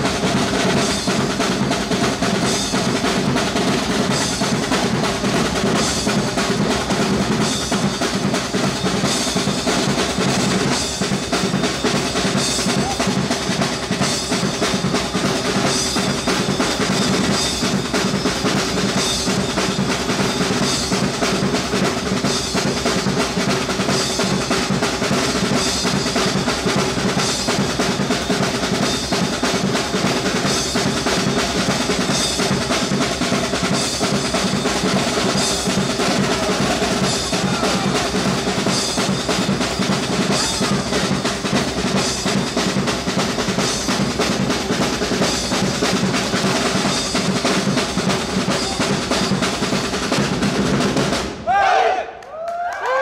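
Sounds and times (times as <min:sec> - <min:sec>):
drum kit beat: 0:00.0 - 0:51.6
wind band playing: 0:32.6 - 0:43.4.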